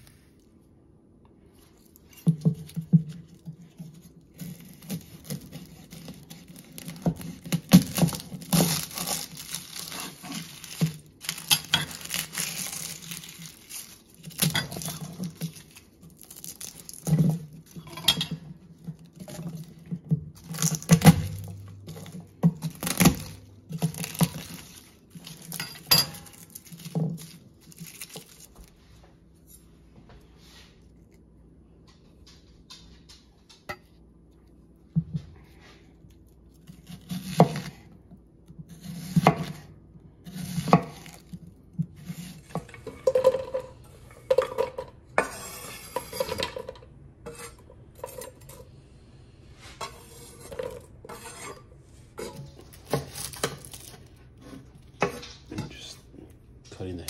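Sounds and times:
papery garlic skins crackling: 3.9s - 28.8s, 52.3s - 55.9s.

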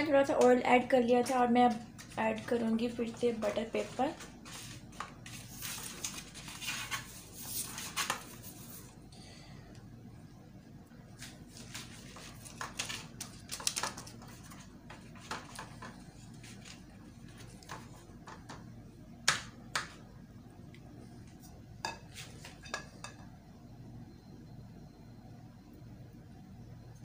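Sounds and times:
faint low hum: 0.0s - 27.0s
pastry brush on baking paper: 1.0s - 9.0s, 14.2s - 18.0s.

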